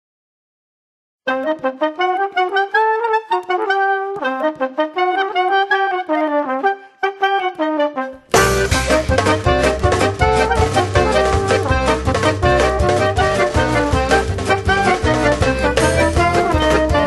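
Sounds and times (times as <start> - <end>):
solo brass melody: 1.3 - 17.0
full band playing: 8.3 - 17.0.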